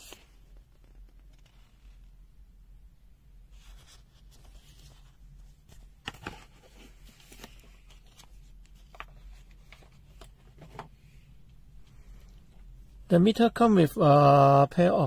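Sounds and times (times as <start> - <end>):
paper rustling: 3.6 - 11.0.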